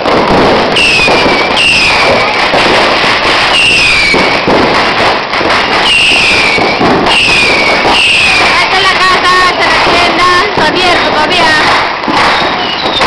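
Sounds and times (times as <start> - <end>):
fireworks crackling barrage: 0.0 - 13.0
short falling whistle: 12.2 - 13.0.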